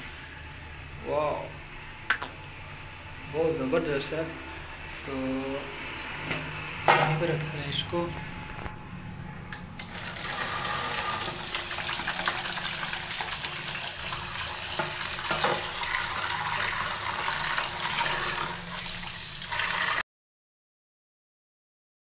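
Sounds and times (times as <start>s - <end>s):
tap water running into tub: 9.8s - 20.0s.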